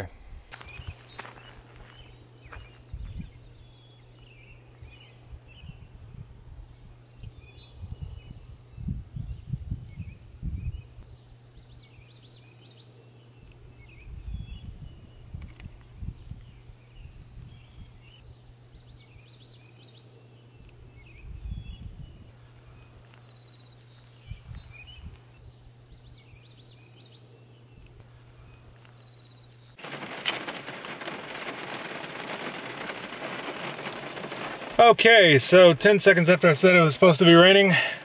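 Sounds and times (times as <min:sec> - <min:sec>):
small birds chirping: 0:00.5 - 0:38.0
low rumbles: 0:29.5 - 0:38.0
heavy rain on a car roof: 0:29.8 - 0:38.0.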